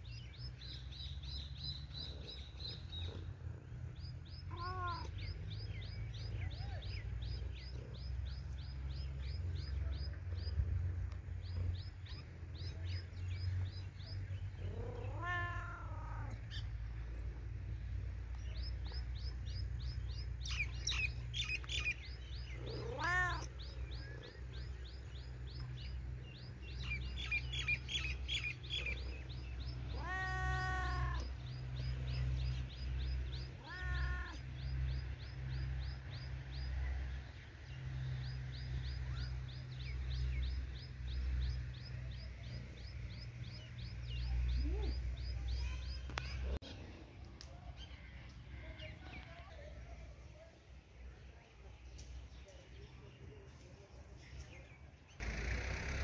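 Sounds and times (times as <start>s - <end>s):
bird chirping: 0.0s - 15.4s, 16.3s - 37.0s
low steady rumble: 0.0s - 30.0s, 55.2s - 56.0s
cat meowing: 4.5s - 5.1s, 14.7s - 16.4s, 22.6s - 23.5s, 29.9s - 31.2s, 33.6s - 34.4s.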